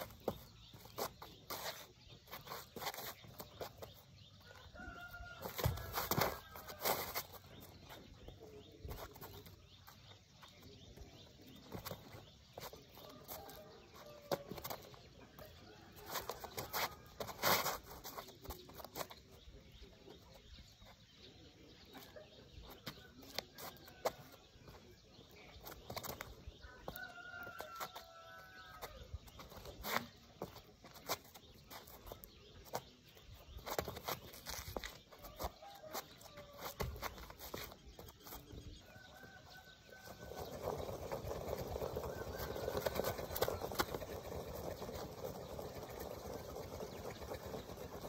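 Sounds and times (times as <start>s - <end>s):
sneakers scuffing on concrete: 0.0s - 7.7s.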